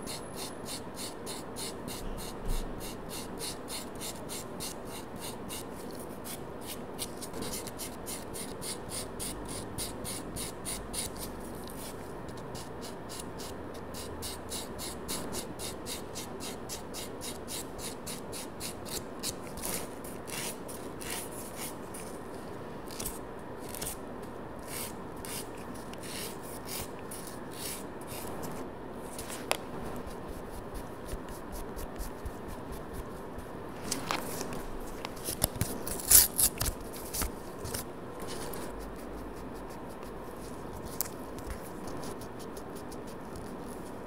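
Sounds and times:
nail buffer rasping on fingernails: 0.1s - 11.9s.

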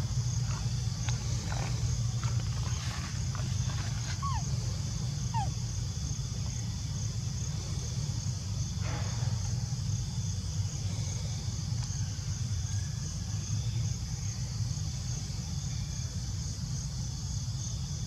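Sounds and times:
cicadas droning: 0.0s - 18.0s
monkey squeak: 4.2s - 4.4s, 5.3s - 5.5s.

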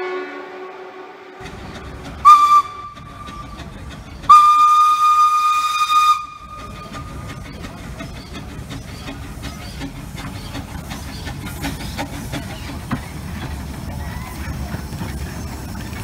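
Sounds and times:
steam locomotive whistle: 0.0s - 7.4s
steam hissing: 1.4s - 16.0s.

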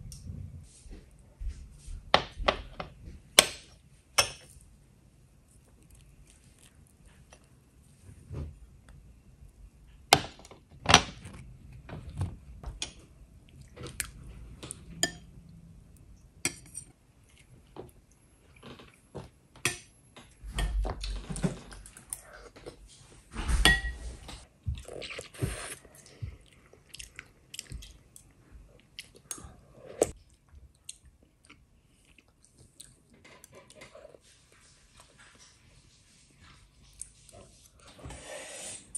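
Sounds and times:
chewing: 24.8s - 34.2s.

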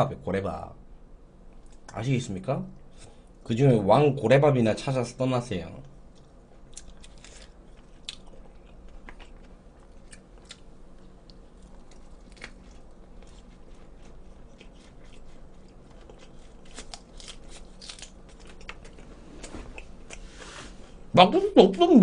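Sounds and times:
crisp chewing crunches: 6.1s - 20.2s.

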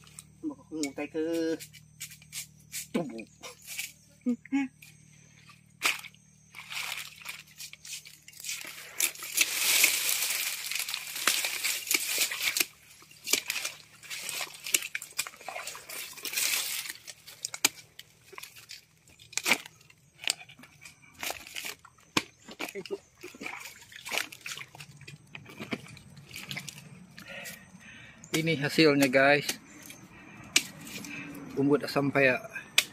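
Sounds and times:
palm fronds crackling underfoot: 5.8s - 27.6s
plastic sack rustling: 6.6s - 17.6s.

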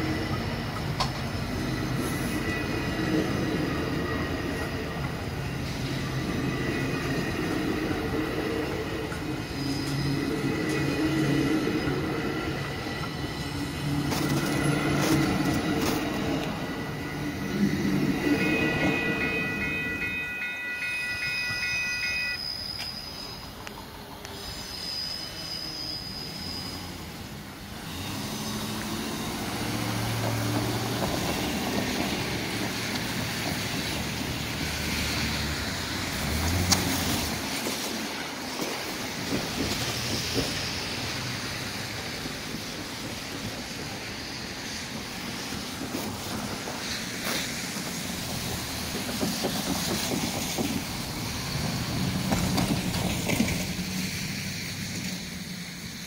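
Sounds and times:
low train rumble: 0.0s - 56.0s
road traffic: 0.0s - 56.0s
train wheel squeal: 0.0s - 56.0s
level crossing bell ringing: 17.8s - 22.4s.

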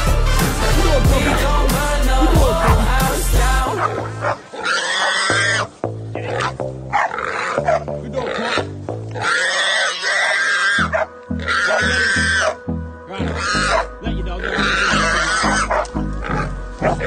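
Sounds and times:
music with pulsing bass beat: 0.0s - 4.4s, 13.5s - 17.0s
boar squealing: 3.8s - 17.0s.

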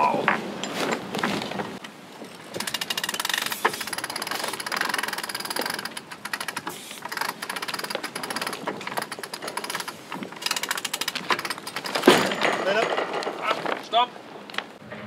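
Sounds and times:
winch ratchet clicks: 2.5s - 12.1s.

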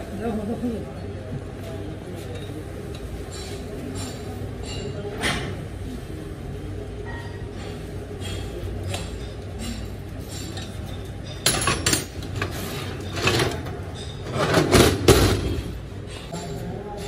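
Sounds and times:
metal wrench and bolts clinking: 9.0s - 14.2s.

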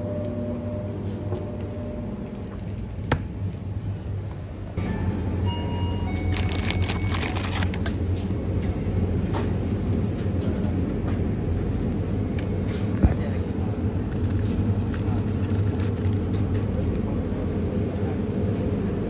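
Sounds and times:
low store hum: 0.0s - 19.0s
packaging clicks and rustles: 6.3s - 7.9s, 14.1s - 16.6s.

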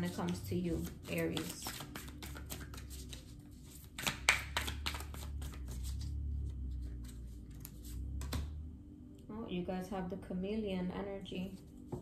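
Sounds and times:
cards being shuffled: 0.0s - 8.5s.

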